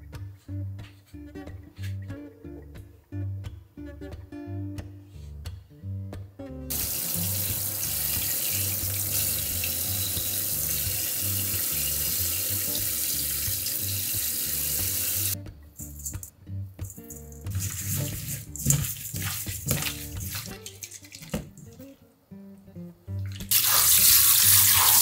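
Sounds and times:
tap water splashing in steel sink: 6.7 - 15.4, 17.5 - 21.8, 23.3 - 25.0.

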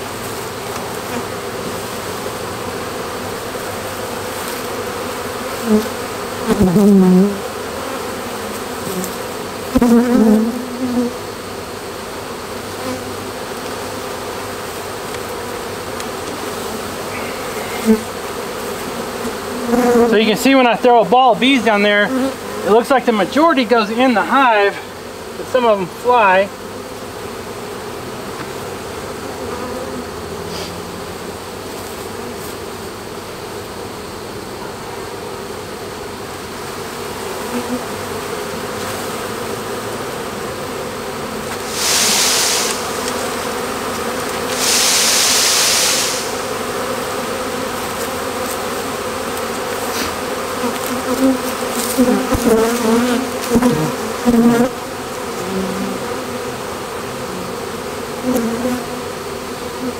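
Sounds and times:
bees flying close by: 0.0 - 59.9
honeybee swarm buzzing: 0.0 - 59.9
hissing noise bursts: 41.5 - 43.4, 44.4 - 46.6.

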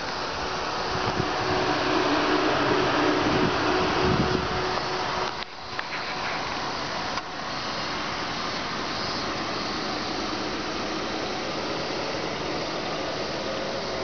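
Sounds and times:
car mechanical hum: 0.0 - 14.0
even hiss: 0.0 - 14.0.

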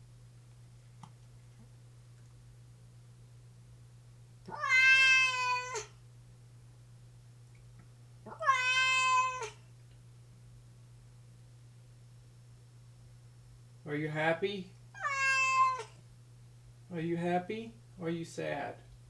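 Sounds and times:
cat meowing: 4.5 - 6.0, 8.3 - 9.6, 15.0 - 16.0.

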